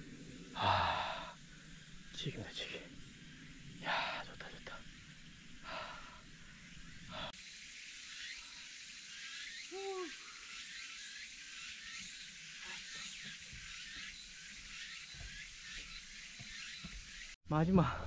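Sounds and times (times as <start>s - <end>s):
steady high hiss: 0.0s - 17.8s
person panting: 0.6s - 1.4s, 5.6s - 6.3s, 7.1s - 7.4s.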